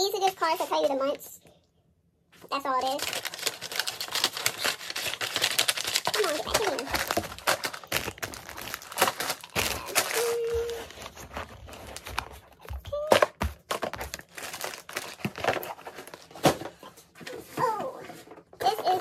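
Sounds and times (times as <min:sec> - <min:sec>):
plastic wrapping crinkling: 0:02.7 - 0:12.8, 0:13.4 - 0:16.6
items knocking against cardboard box: 0:06.4 - 0:18.9.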